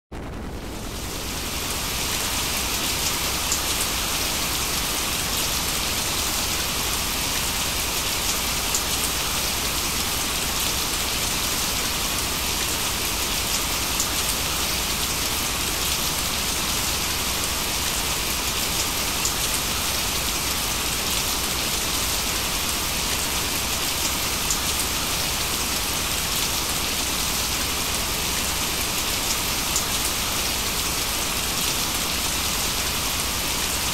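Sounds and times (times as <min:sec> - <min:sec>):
steady rain hiss: 0:00.2 - 0:33.9
rain drop ticks: 0:08.3 - 0:08.9.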